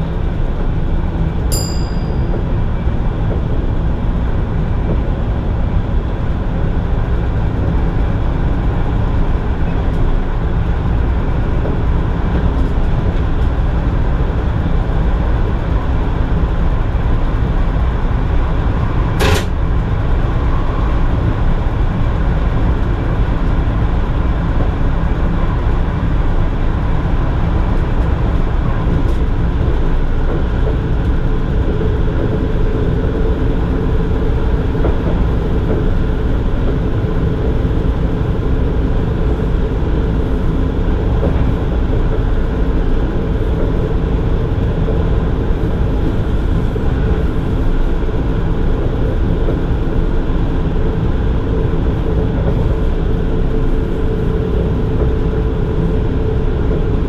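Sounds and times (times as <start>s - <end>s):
steady hum: 0.0s - 57.0s
train running gear rumble: 0.0s - 57.0s
sharp click: 19.2s - 19.6s.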